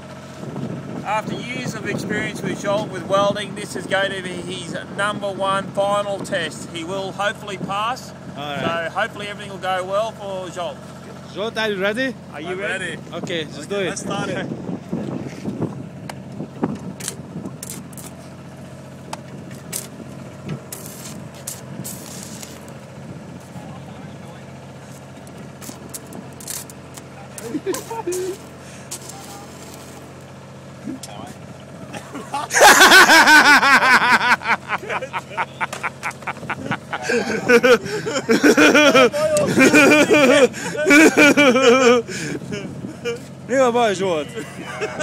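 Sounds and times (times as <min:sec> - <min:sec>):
steady engine hum: 0:00.0 - 0:45.0
welding arc crackling: 0:17.0 - 0:18.2, 0:19.6 - 0:23.5, 0:24.7 - 0:30.8
men laughing hard: 0:27.4 - 0:28.5, 0:31.8 - 0:43.3, 0:44.3 - 0:45.0
breathy wheezing laughter: 0:31.9 - 0:43.3.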